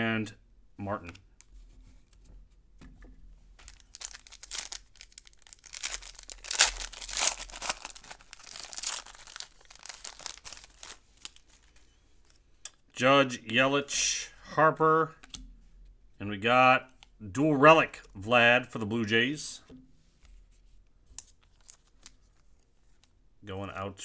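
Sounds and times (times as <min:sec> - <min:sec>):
foil wrapper crinkling: 0:03.6 - 0:12.4, 0:21.5 - 0:22.4.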